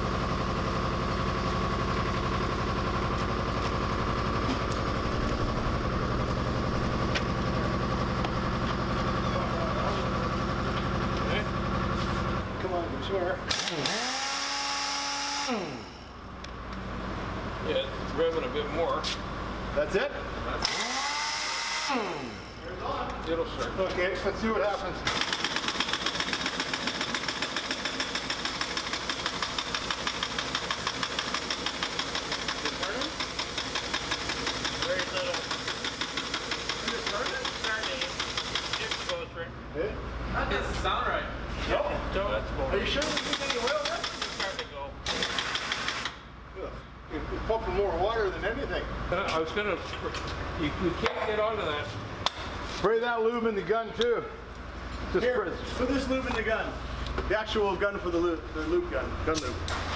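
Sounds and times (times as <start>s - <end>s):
air compressor pulsing: 0.0s - 12.5s, 13.4s - 16.4s, 20.6s - 22.8s, 25.0s - 39.3s, 42.9s - 46.3s
impact wrench hammering: 13.5s - 16.0s, 25.1s - 39.2s, 43.0s - 46.3s.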